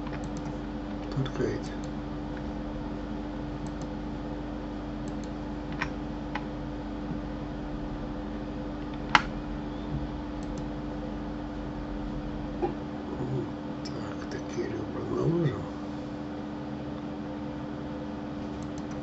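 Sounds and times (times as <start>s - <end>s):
computer mouse and keyboard clicks: 0.0s - 1.2s, 3.6s - 3.9s, 5.0s - 6.5s, 18.5s - 19.0s
steady low hum: 0.0s - 19.0s.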